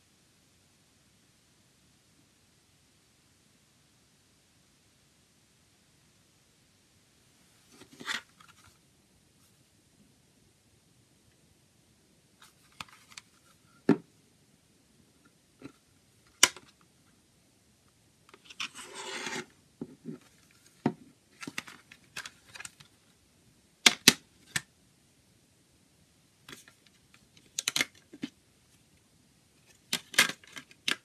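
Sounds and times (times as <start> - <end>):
case snapping open: 29.9 - 31.0.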